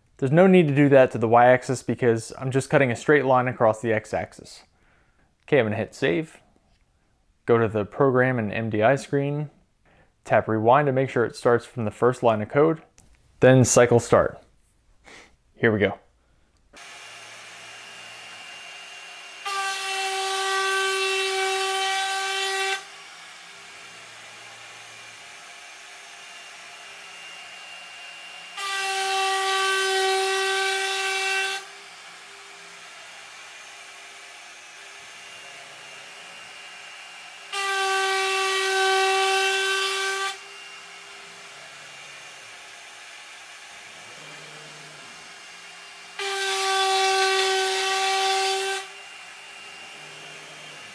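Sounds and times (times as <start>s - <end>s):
router spindle whining cutting wood: 16.8s - 50.9s.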